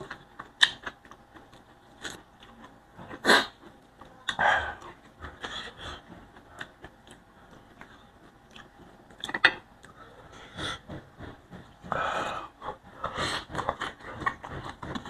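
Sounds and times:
chewing and wet mouth sounds: 0.0 - 10.1.

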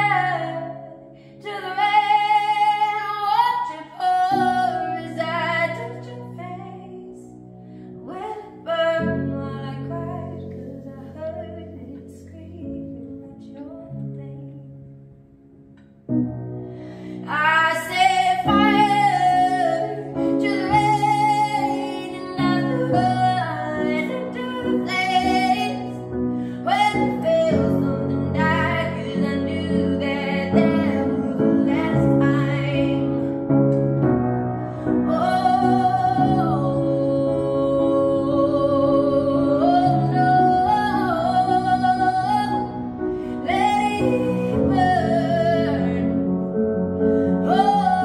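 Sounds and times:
woman singing a slow ballad: 0.0 - 14.8, 17.0 - 33.9, 34.8 - 48.0
piano chords: 0.0 - 48.0.

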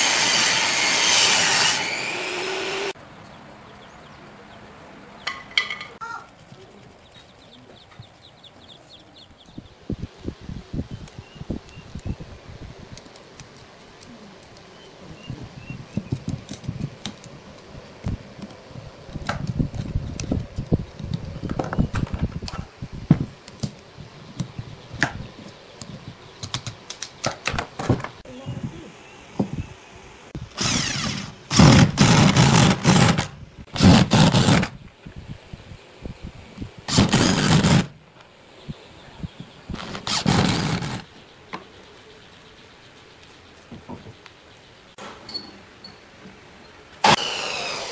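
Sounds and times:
power drill driving screws: 30.5 - 34.7, 36.9 - 37.9, 39.8 - 41.0, 47.0 - 47.9.

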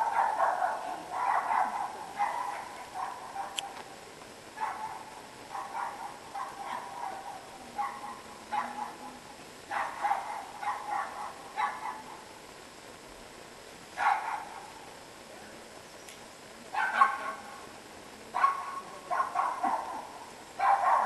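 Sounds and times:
dog barking in a hall: 0.0 - 3.8, 4.6 - 9.0, 9.7 - 12.2, 14.0 - 14.7, 16.7 - 17.6, 18.3 - 21.0.

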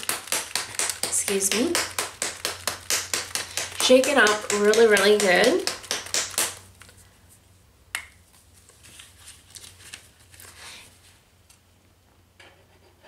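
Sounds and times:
plastic bottle shaking: 0.0 - 7.0.

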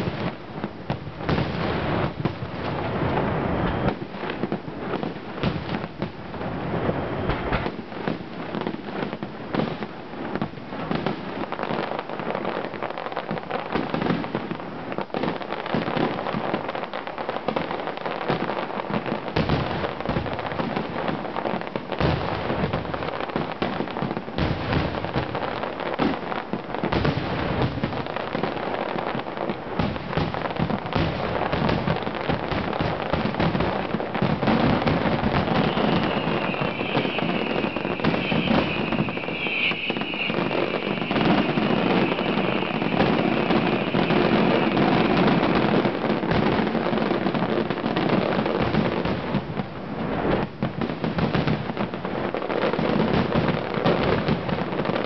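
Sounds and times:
fireworks crackling: 0.0 - 55.0
firework shell bursts: 35.2 - 45.5.

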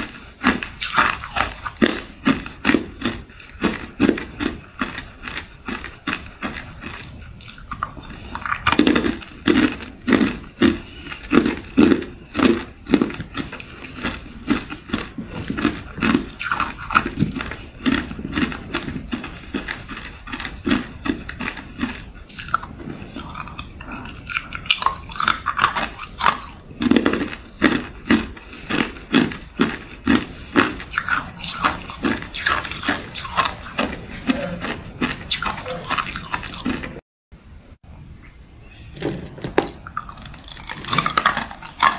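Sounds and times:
ice cubes crunching in mouth: 0.0 - 37.0, 39.6 - 41.9.

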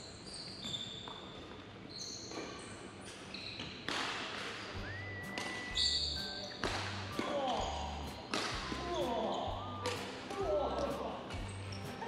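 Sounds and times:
sports shoes squeaking on floor: 0.0 - 12.0
racket hitting shuttlecock: 3.8 - 4.6, 5.3 - 5.8, 6.6 - 11.5.

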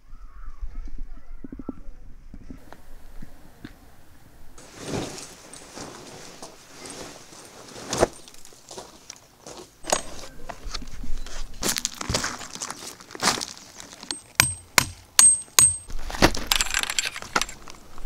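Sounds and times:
rustling of bags and fabric: 4.6 - 14.3
footsteps on gravel: 4.6 - 15.1
small clinks and knocks: 13.8 - 17.9.

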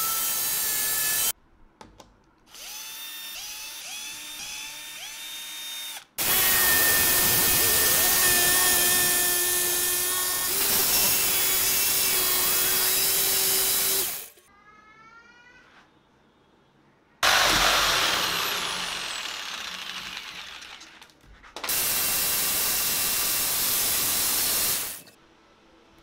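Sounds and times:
jigsaw cutting plywood: 6.2 - 14.2, 17.2 - 21.1
jigsaw short rising whines: 17.2 - 21.0.

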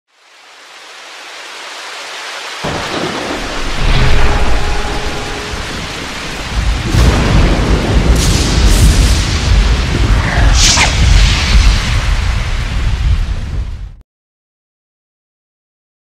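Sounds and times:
rain hiss: 0.1 - 13.8
rolling thunder: 2.6 - 14.0.

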